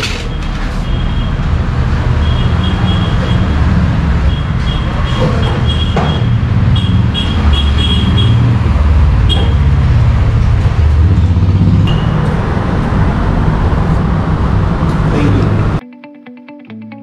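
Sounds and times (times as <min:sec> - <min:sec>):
low rumble of road traffic: 0:00.0 - 0:15.8.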